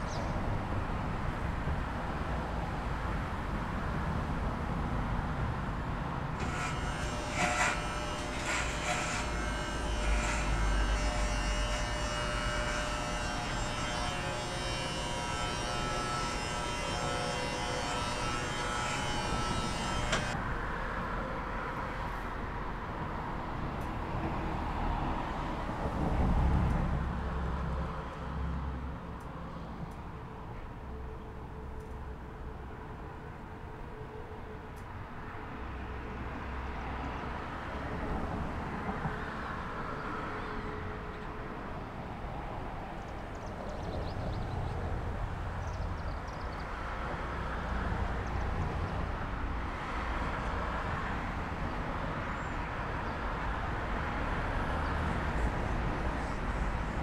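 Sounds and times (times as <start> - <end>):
electric shaver buzzing: 6.4 - 20.4.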